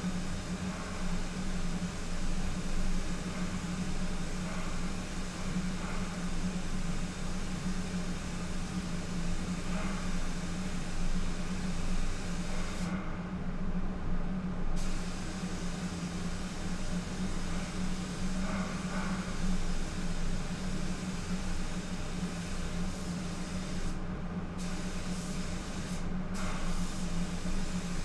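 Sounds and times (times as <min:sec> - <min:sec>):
spray booth airflow drone: 0:00.0 - 0:28.0
spray gun hissing: 0:14.8 - 0:24.0, 0:24.6 - 0:28.0.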